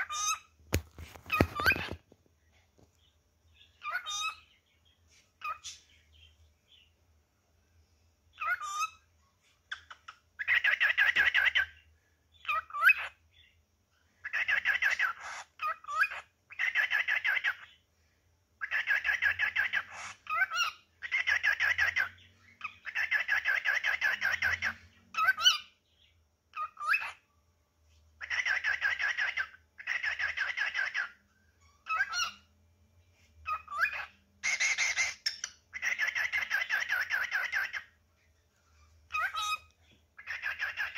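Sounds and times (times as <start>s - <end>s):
cockatiel chattering: 3.8s - 4.4s, 8.4s - 9.0s, 9.7s - 11.7s, 14.2s - 17.7s, 18.6s - 25.7s, 28.2s - 32.4s, 33.4s - 37.9s, 39.1s - 40.9s.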